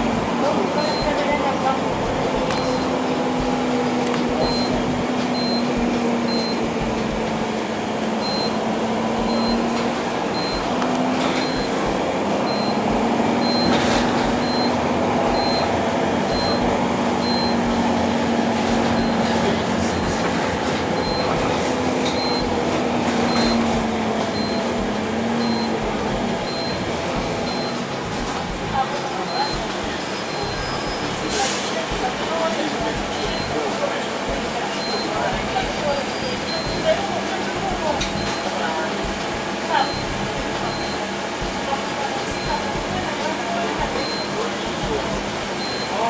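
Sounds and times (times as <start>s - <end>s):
bus engine drone: 0.0s - 46.0s
road noise: 0.0s - 46.0s
faint high beep: 2.6s - 3.0s, 6.3s - 6.6s, 30.3s - 31.0s.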